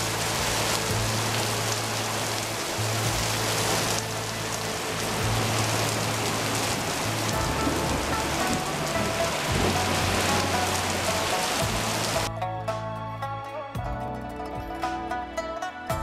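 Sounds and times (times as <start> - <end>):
heavy rain pouring: 0.0 - 12.3.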